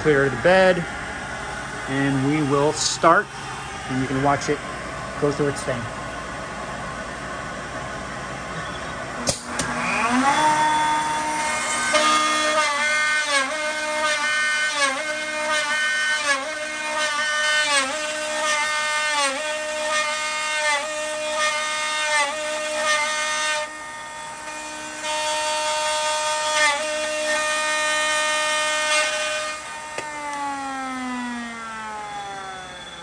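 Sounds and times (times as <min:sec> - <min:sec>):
dust collector running: 0:00.0 - 0:33.0
router spindle whining: 0:08.5 - 0:33.0
router cutting wood: 0:09.2 - 0:33.0.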